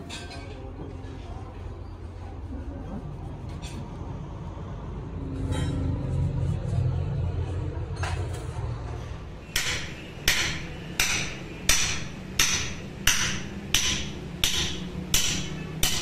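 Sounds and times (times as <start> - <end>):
hammer striking steel: 9.4 - 16.0.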